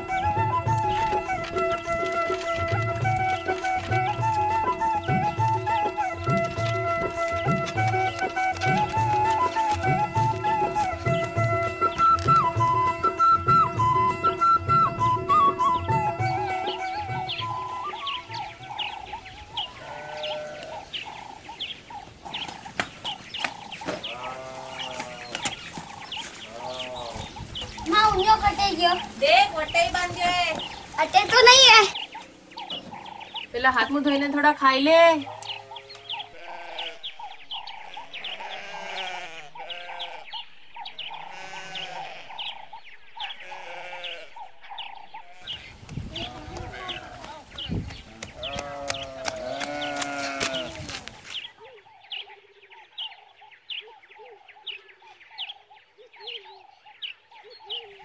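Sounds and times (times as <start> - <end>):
chickens clucking: 0.0 - 52.4
small birds chirping: 0.0 - 58.0
livestock bleating: 19.6 - 20.9, 24.1 - 25.5, 26.4 - 27.3, 35.2 - 51.0.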